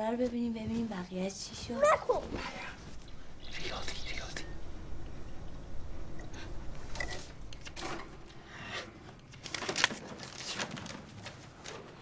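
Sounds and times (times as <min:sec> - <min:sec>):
paper rustling: 0:09.3 - 0:12.0.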